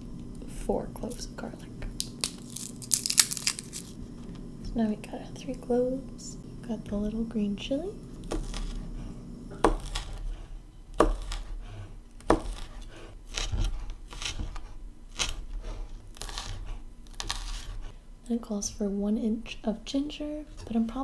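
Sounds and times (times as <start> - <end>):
knife chopping chili: 8.2 - 17.9.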